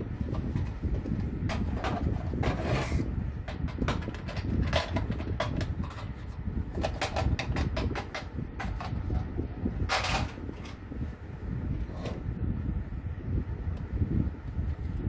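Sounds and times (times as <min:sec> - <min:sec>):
steady low rumble: 0:00.0 - 0:15.0
plastic toys clicking and knocking: 0:03.5 - 0:09.3, 0:09.9 - 0:10.8.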